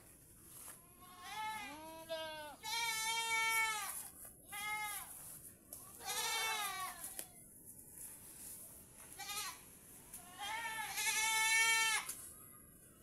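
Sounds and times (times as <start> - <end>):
goats bleating: 1.0 - 5.1, 5.9 - 7.2, 9.1 - 12.1.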